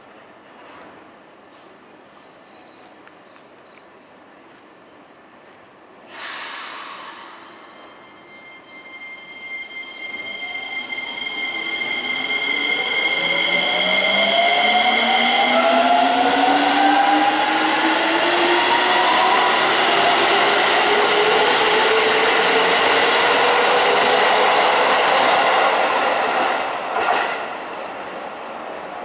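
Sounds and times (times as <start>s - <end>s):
train wheels rolling: 10.2s - 27.6s.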